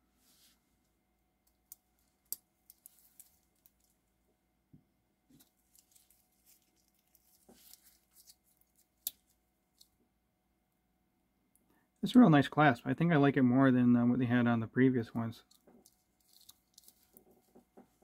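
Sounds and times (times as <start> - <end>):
watch bracelet clicks and rattles: 15.5 - 17.6.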